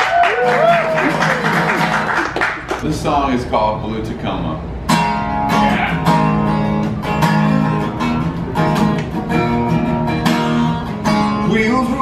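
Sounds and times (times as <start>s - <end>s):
acoustic guitar strumming chords: 4.8s - 12.0s.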